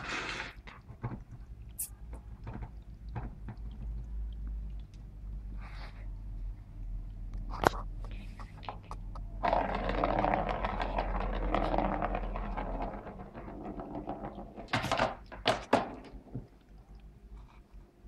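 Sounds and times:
ball rolling around plastic track: 0:08.5 - 0:16.7.

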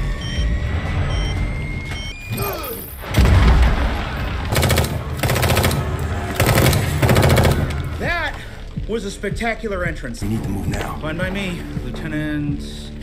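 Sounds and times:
heavy boom: 0:03.0 - 0:04.6
automatic rifle fire: 0:04.5 - 0:07.8.

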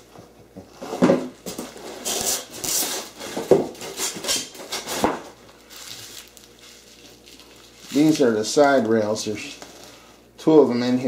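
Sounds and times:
bubble wrap crinkling: 0:03.8 - 0:10.1.

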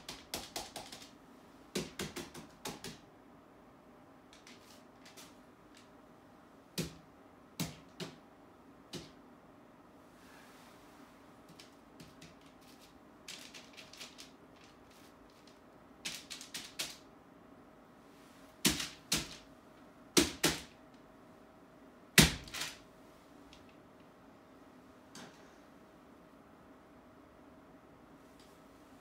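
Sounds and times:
paint pens clicking and knocking: 0:00.0 - 0:01.1.

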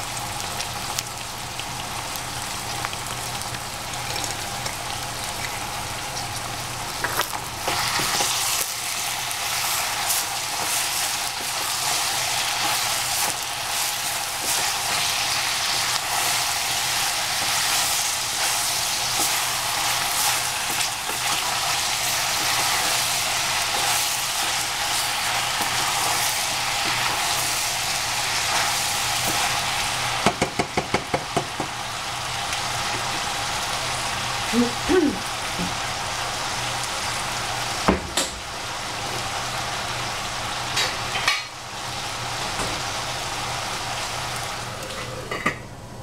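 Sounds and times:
vegetables sizzling in a pan: 0:00.0 - 0:45.5
utensil knocking against pan: 0:30.2 - 0:31.7.

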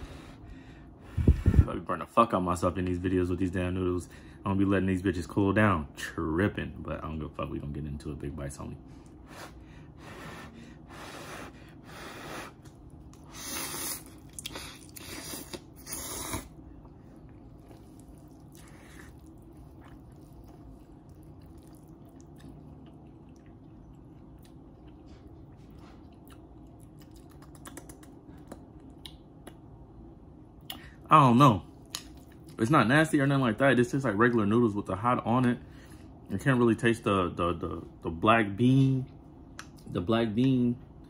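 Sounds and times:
person chewing: 0:12.5 - 0:29.6
person slurping noodles: 0:13.3 - 0:16.6.

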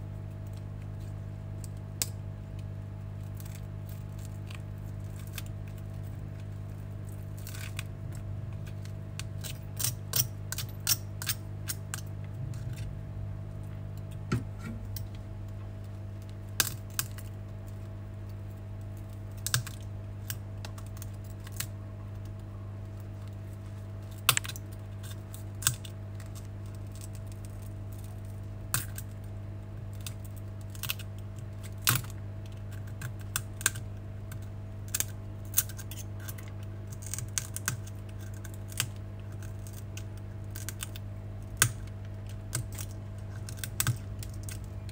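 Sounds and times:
steady low hum: 0:00.0 - 0:44.9.

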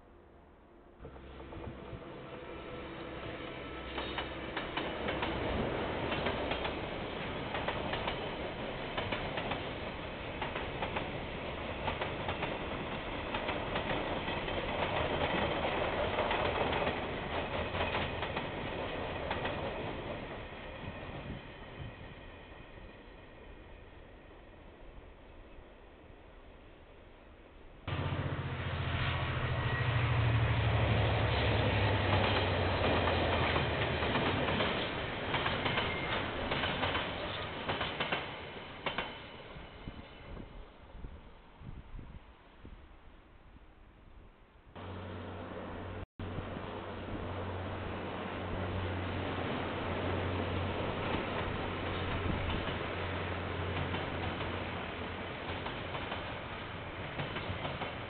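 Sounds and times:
locomotive engine drone: 0:01.0 - 0:07.2, 0:27.9 - 0:33.8, 0:44.8 - 0:55.3
train wheel rumble: 0:01.0 - 0:23.2, 0:27.9 - 0:42.1, 0:44.8 - 0:58.0.

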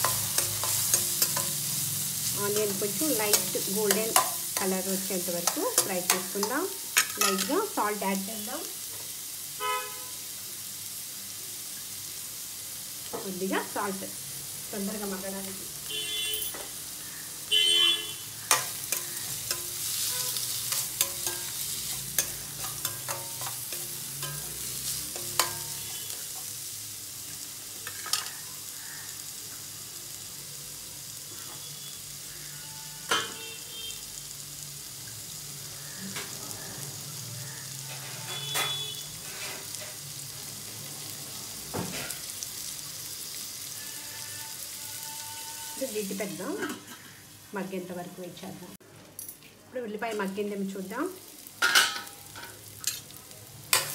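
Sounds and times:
spatula scraping a pan: 0:00.0 - 0:07.5, 0:18.4 - 0:26.5, 0:37.8 - 0:40.0, 0:43.7 - 0:47.2
onions sizzling in oil: 0:00.0 - 0:48.8, 0:49.7 - 0:53.9.

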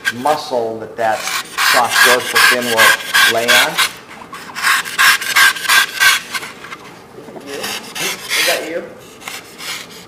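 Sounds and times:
knife scraping foam: 0:01.1 - 0:06.6, 0:07.4 - 0:10.0.

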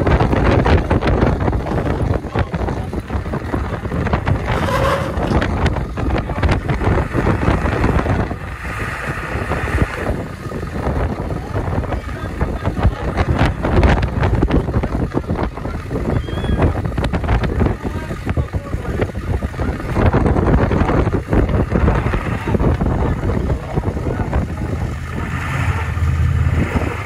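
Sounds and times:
pickup truck engine running: 0:00.0 - 0:27.0
wind buffeting microphone: 0:00.0 - 0:27.0
crowd chatter: 0:09.7 - 0:27.0.

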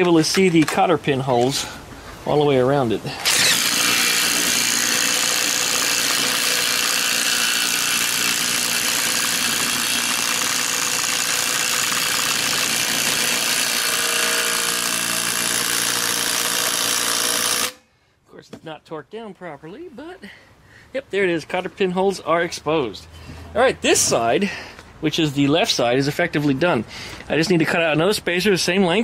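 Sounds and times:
impact driver running: 0:03.2 - 0:17.8.

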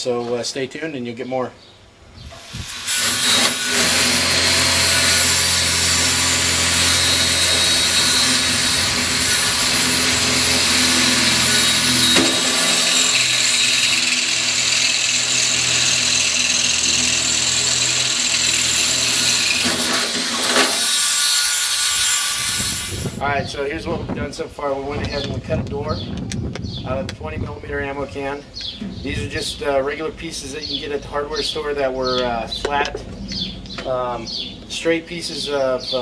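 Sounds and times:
cordless drill boring into sheet metal: 0:02.4 - 0:23.2.

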